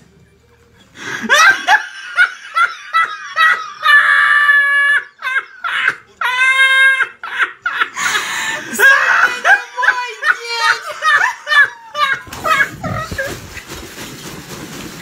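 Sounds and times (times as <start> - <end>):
high-pitched squealing laughs: 1.3 - 7.9, 8.7 - 13.6.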